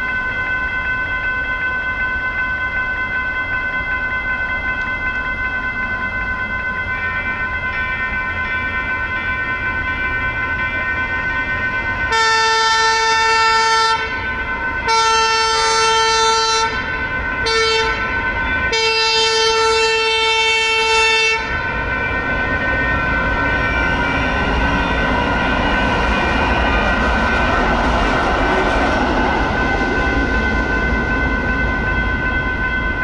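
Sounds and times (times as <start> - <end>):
crossing bells ringing: 0.0 - 33.0
train rumbling past: 4.9 - 33.0
train horn: 12.1 - 21.6.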